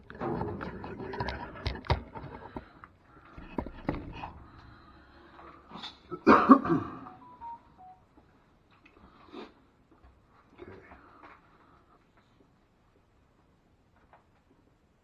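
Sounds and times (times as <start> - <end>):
faint short beeps: 7.1 - 8.0.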